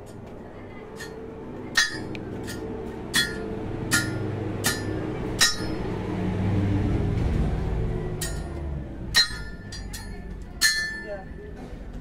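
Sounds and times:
hammer clinking on metal: 0:01.8 - 0:05.8, 0:09.1 - 0:11.4.

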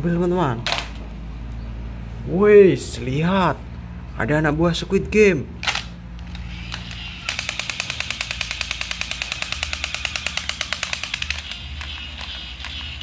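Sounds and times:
toy machine-gun clicks rattling: 0:05.6 - 0:13.0
toy motor low hum: 0:06.2 - 0:13.0.

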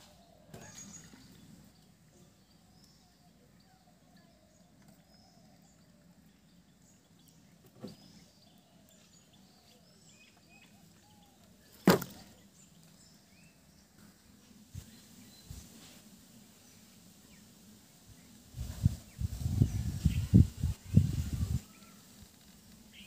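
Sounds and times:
faint birdsong: 0:00.0 - 0:23.0
knock in plastic bucket: 0:11.8 - 0:12.2.

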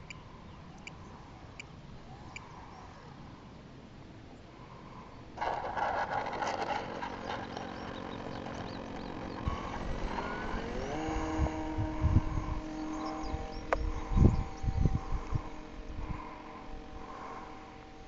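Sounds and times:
model airplane motor whine: 0:05.4 - 0:18.0.

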